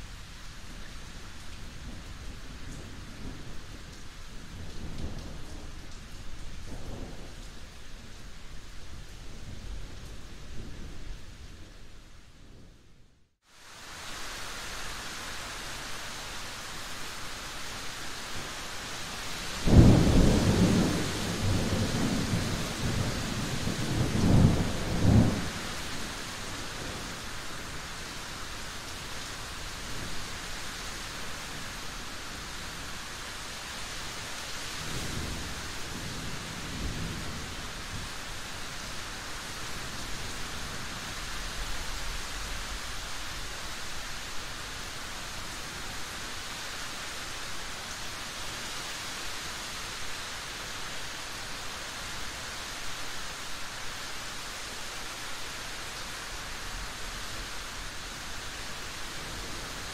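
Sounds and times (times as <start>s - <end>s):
rain falling: 0.0s - 59.9s
thunder rumbling: 19.6s - 25.6s.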